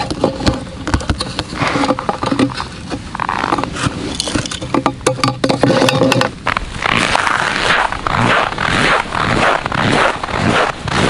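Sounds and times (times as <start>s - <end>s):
clothing and gear rustling: 5.7s - 11.0s.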